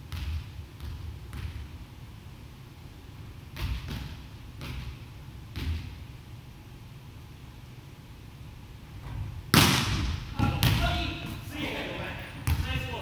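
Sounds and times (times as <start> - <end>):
volleyball bouncing on wooden floor: 3.5 - 6.0, 9.0 - 11.0, 12.4 - 13.0.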